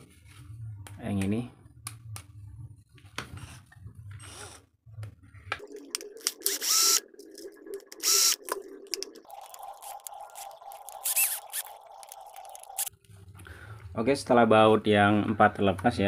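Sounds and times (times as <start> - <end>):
cordless drill running: 6.4 - 7.0, 8.0 - 8.4, 11.0 - 11.6.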